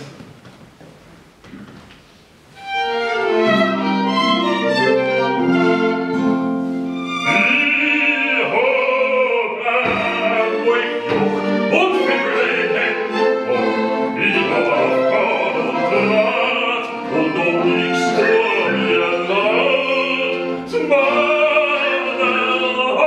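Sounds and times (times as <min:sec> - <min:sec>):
violins accordion and guitar playing: 0:02.6 - 0:08.5, 0:09.9 - 0:23.0
man singing: 0:07.2 - 0:23.0.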